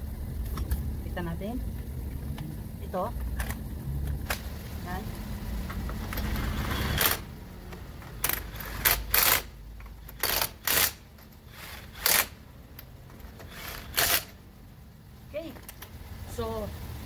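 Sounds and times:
impact wrench running: 6.0s - 7.3s, 8.0s - 14.4s.

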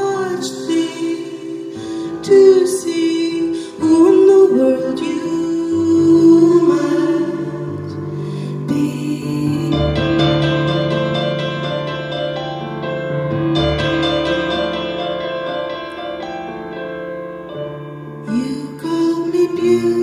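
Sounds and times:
person singing: 0.0s - 11.8s, 18.2s - 20.0s
piano playing held chords: 0.0s - 20.0s.

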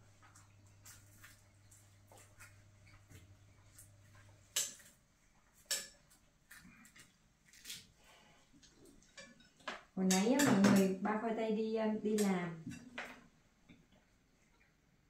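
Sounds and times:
utensils clicking on dishes: 4.5s - 4.9s, 5.7s - 6.0s, 9.1s - 11.0s.

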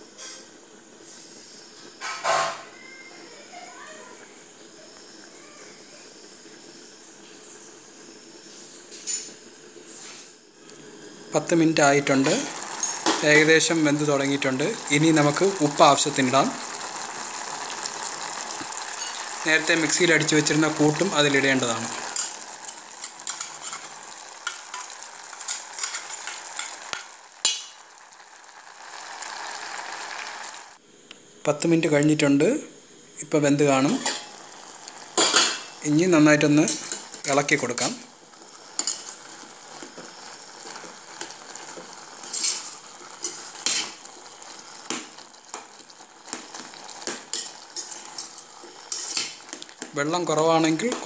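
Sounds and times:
quiet hiss: 0.0s - 51.0s
spoon scraping in metal pot: 18.9s - 19.4s, 21.9s - 27.2s, 38.7s - 40.0s, 40.6s - 44.6s, 46.3s - 49.6s.

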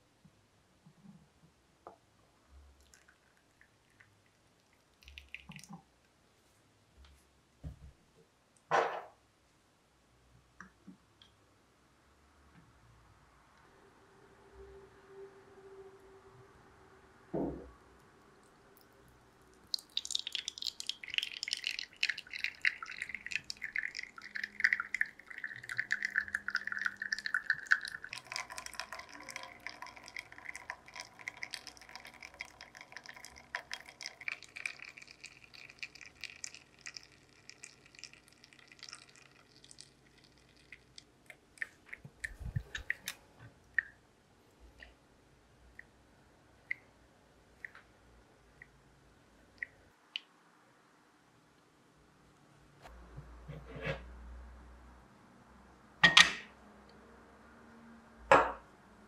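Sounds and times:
coffee dripping: 2.8s - 6.1s, 18.0s - 44.0s
low thump: 17.3s - 17.7s.

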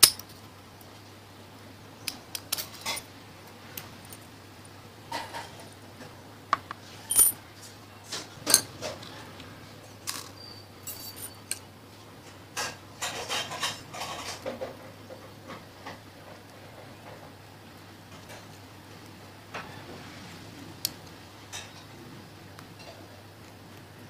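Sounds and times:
metallic clicks of padlock and pins: 0.0s - 0.4s, 2.0s - 3.0s
low steady hum: 0.0s - 24.0s.

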